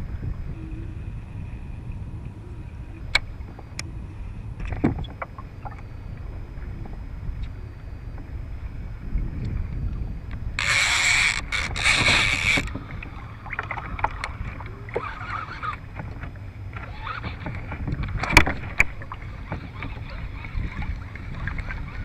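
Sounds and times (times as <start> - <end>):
wind rumble on microphone: 0.0 - 22.0
fishing reel drag buzzing: 10.5 - 12.8, 14.9 - 15.8
small clicks: 10.6 - 12.8.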